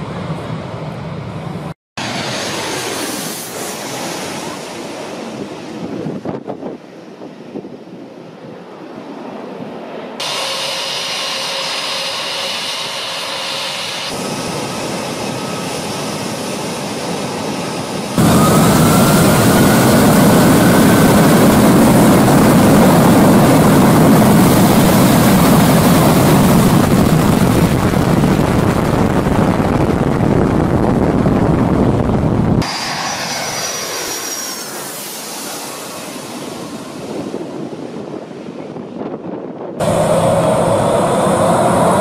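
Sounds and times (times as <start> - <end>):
faint high engine whine: 0.0 - 39.1, 39.8 - 42.0
jet airliner engine roar: 0.0 - 42.0
loud steady roar: 10.2 - 42.0.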